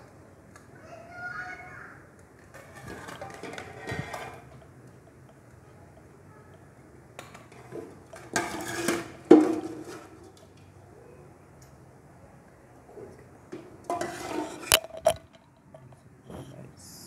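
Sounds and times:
utensil scraping metal pots: 0:02.5 - 0:06.1, 0:07.2 - 0:10.4, 0:13.6 - 0:16.0.

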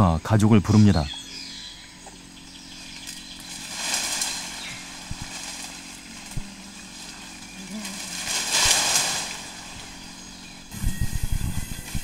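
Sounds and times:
high hiss of forest life: 0:02.5 - 0:10.8.

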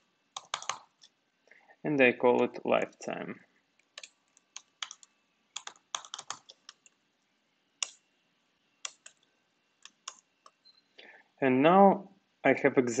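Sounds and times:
computer keyboard typing: 0:00.4 - 0:01.1, 0:03.8 - 0:07.0, 0:07.8 - 0:08.0, 0:08.8 - 0:10.6.

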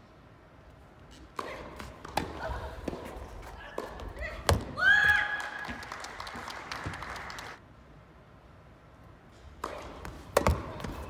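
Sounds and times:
spectators clapping: 0:05.3 - 0:07.6.

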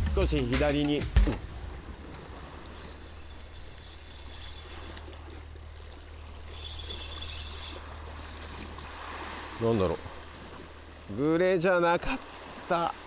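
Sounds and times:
low rumble: 0:00.0 - 0:02.7
sea water washing against rocks: 0:00.0 - 0:13.0.

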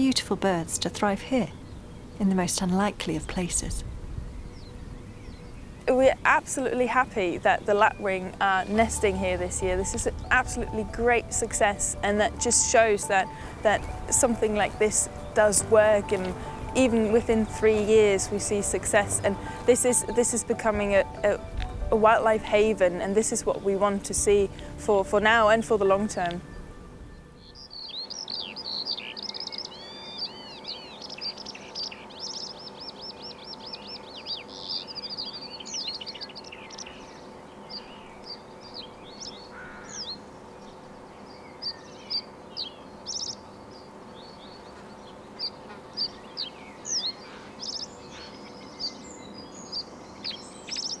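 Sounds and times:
steady low hum: 0:00.0 - 0:27.6
small birds trilling and chirping: 0:00.0 - 0:51.0.

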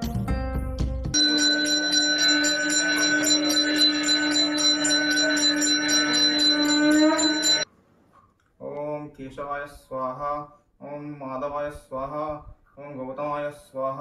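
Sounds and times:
bell ringing rapidly: 0:01.2 - 0:07.7.

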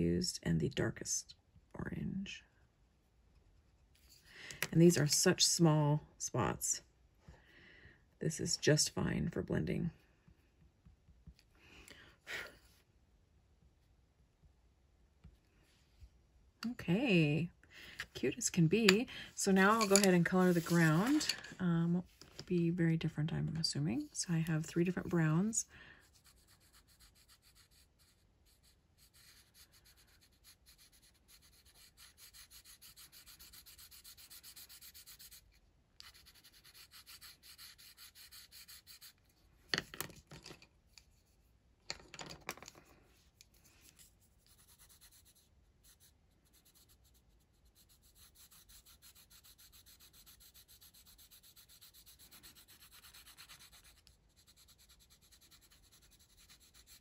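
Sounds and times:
colored pencil scratching on paper: 0:18.8 - 0:21.3, 0:24.4 - 0:39.4, 0:43.9 - 0:57.0.

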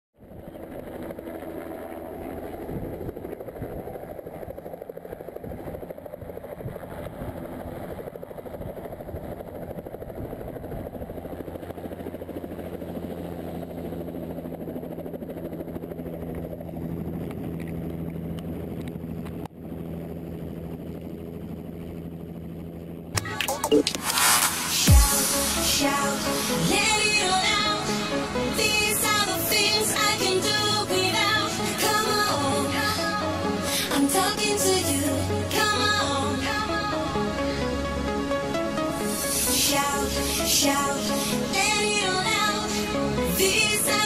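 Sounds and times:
helicopter rotor beating: 0:00.2 - 0:44.0
steady low hum: 0:16.5 - 0:44.0.

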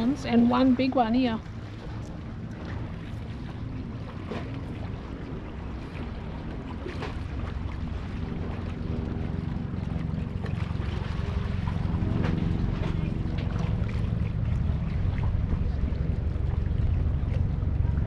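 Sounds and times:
boat motor running: 0:00.0 - 0:18.0
water slapping against hull: 0:00.0 - 0:18.0
wind on microphone: 0:00.0 - 0:18.0.

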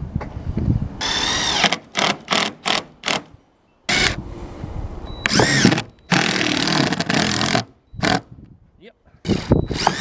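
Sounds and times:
cordless driver driving screw: 0:09.3 - 0:10.0.

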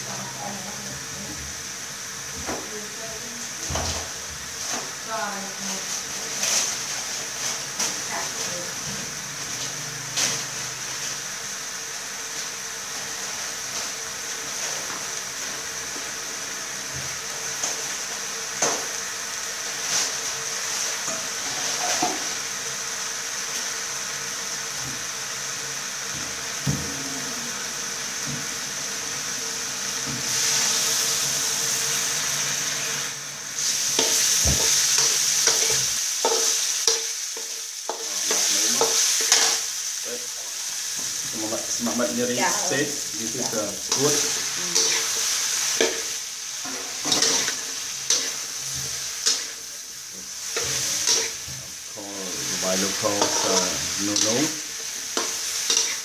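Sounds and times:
meat sizzling in a wok: 0:00.0 - 0:56.0
metal spatula scraping pan: 0:43.9 - 0:49.7, 0:50.4 - 0:51.6, 0:52.8 - 0:56.0.

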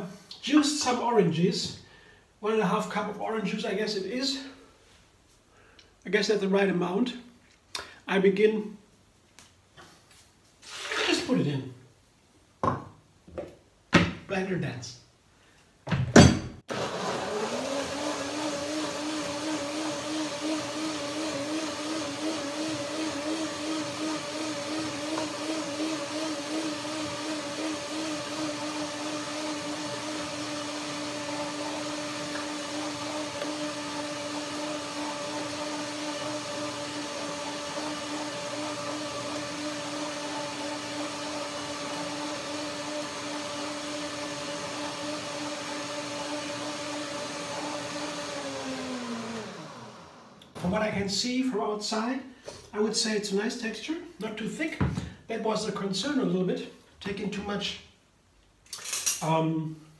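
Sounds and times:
blender motor running: 0:16.7 - 0:50.6.

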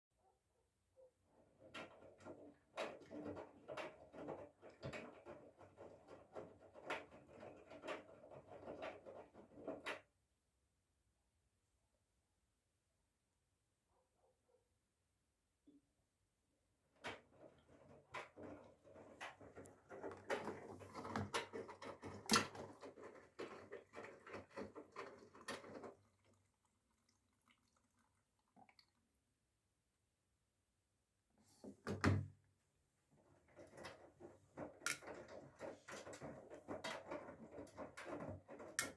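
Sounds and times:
laundry splashing in washing machine: 0:16.9 - 0:29.1.

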